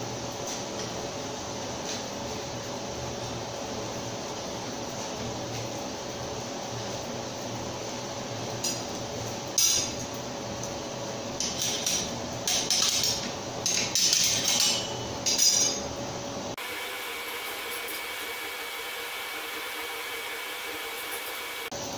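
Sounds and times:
workshop machine hum: 0.0s - 21.9s
steel bars clinking: 11.4s - 15.9s.

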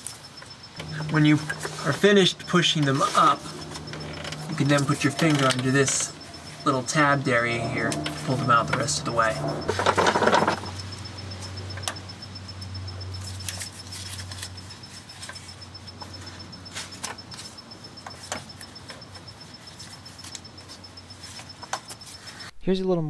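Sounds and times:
low steady hum: 0.8s - 14.8s.

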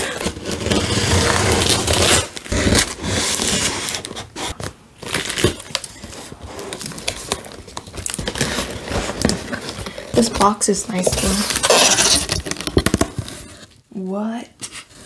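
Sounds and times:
packing tape ripping: 0.0s - 13.6s
cardboard scraping and crinkling: 0.0s - 13.8s
sharp cardboard cracks: 6.9s - 13.6s.

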